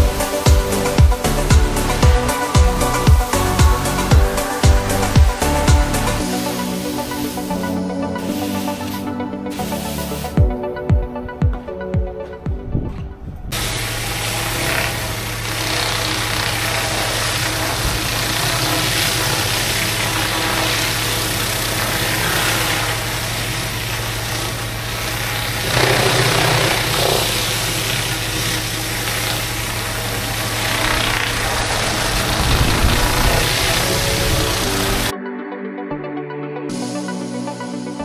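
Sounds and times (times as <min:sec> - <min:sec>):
pressure washer spray hissing: 0:00.0 - 0:10.9, 0:13.6 - 0:35.1
music with a beat: 0:00.0 - 0:13.2, 0:36.0 - 0:38.0
engine hum: 0:00.0 - 0:35.1.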